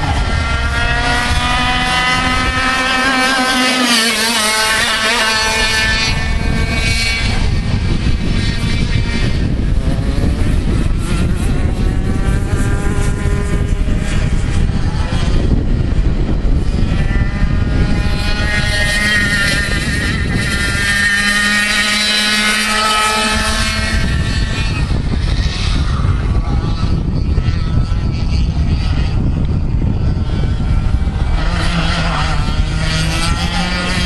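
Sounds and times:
two-stroke kart engine revving: 0.0 - 34.0.

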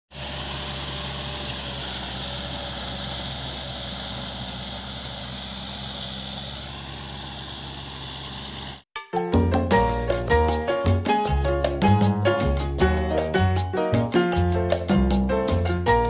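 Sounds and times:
tractor diesel engine under load: 0.1 - 8.9.

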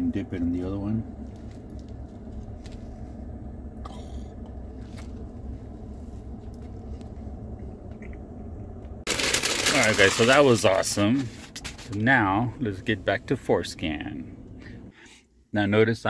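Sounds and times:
air conditioning running: 0.0 - 16.0
paper wrapper rustling: 9.1 - 12.0.

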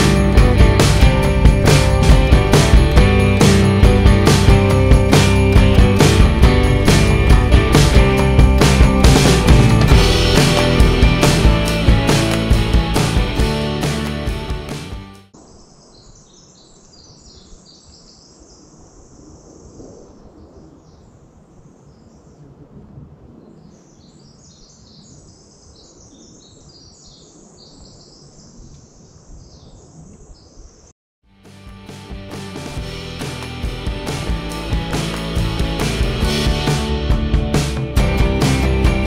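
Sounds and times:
background music: 0.0 - 15.3, 31.3 - 39.0
songbirds chirping and trilling: 15.3 - 22.6, 23.3 - 30.9.

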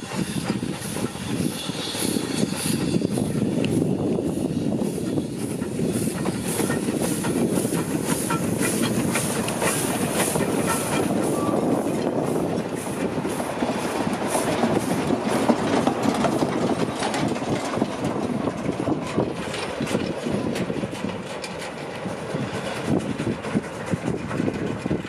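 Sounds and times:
steam locomotive exhaust beating: 0.0 - 25.0
wheels clattering over rail joints: 5.1 - 25.0.

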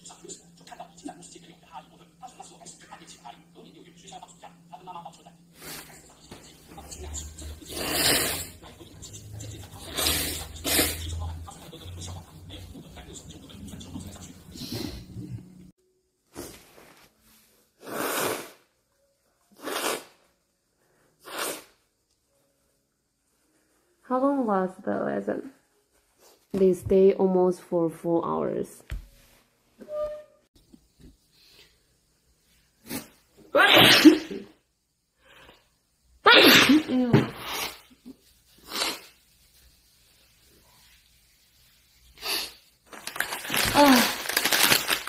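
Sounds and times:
woman sneezing: 32.9 - 34.4, 36.2 - 37.8.

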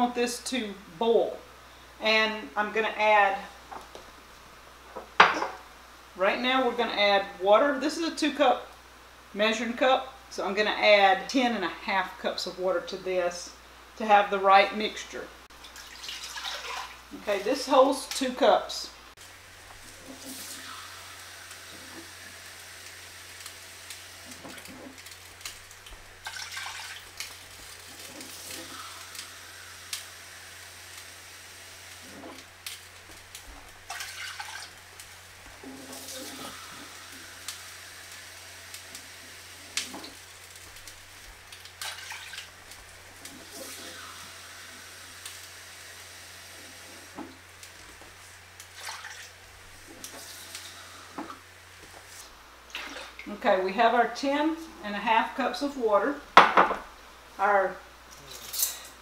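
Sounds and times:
water splashing into pot: 15.6 - 17.2, 22.8 - 29.4, 32.0 - 37.6, 39.7 - 44.3, 48.6 - 49.4, 52.7 - 53.3.

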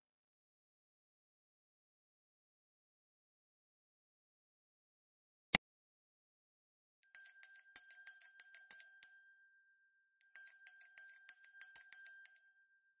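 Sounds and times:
small bell ringing rapidly: 7.0 - 9.4, 10.2 - 13.0.

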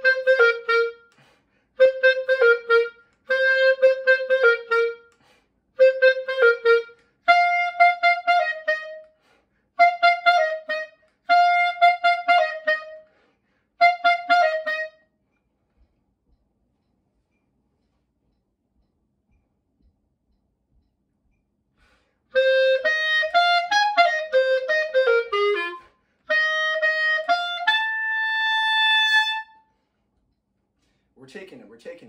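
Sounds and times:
clarinet playing detached notes: 0.0 - 1.2, 1.8 - 5.2, 5.8 - 9.2, 9.8 - 13.2, 13.8 - 15.2, 22.3 - 29.8.

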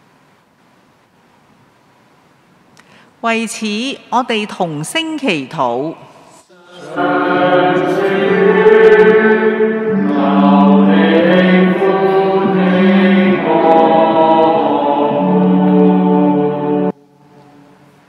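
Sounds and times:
choir singing long notes: 6.5 - 17.0.

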